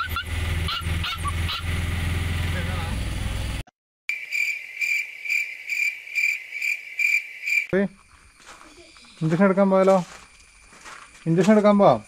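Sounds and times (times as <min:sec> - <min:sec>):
cricket chirping: 0:04.1 - 0:12.0.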